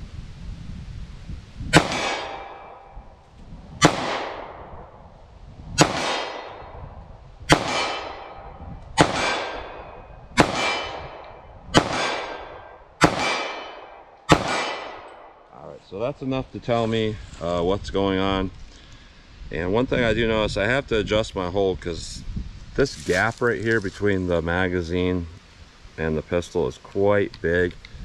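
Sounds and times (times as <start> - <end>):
pistol shots echoing: 1.8 - 3.0, 3.8 - 5.0, 5.8 - 6.8, 7.5 - 15.4.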